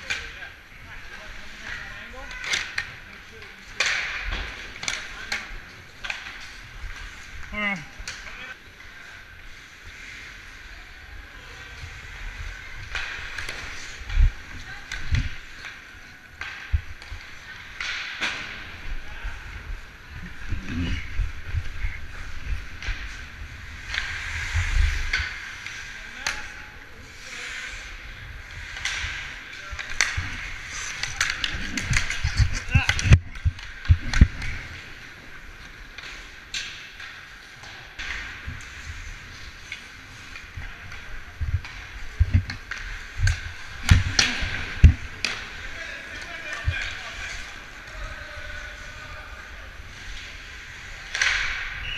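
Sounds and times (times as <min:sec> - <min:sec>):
skates scraping on ice: 0:00.1 - 0:51.9
stick and puck clacks: 0:01.5 - 0:07.2, 0:12.3 - 0:18.7, 0:20.8 - 0:26.6, 0:28.0 - 0:48.8, 0:49.9 - 0:51.9.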